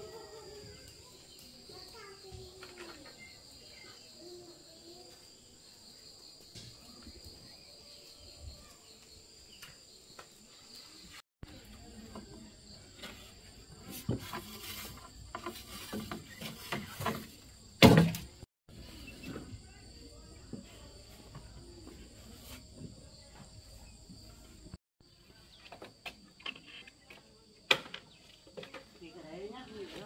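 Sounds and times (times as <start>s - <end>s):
insects calling: 0.0s - 12.0s.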